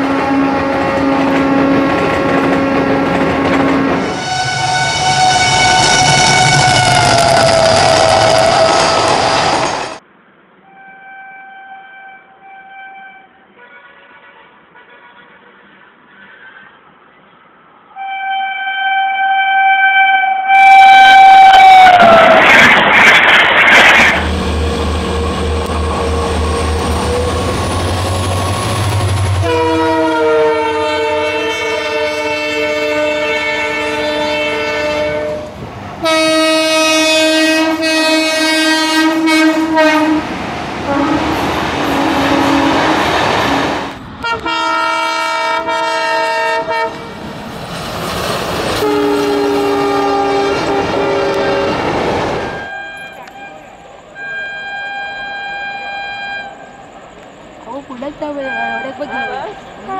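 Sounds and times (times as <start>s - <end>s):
locomotive horn chord blasts: 0.0s - 8.6s, 10.6s - 15.6s, 18.0s - 22.1s, 28.8s - 40.3s, 40.9s - 43.2s, 44.2s - 47.2s, 48.8s - 51.8s, 52.5s - 56.8s
passing trains: 0.0s - 59.9s.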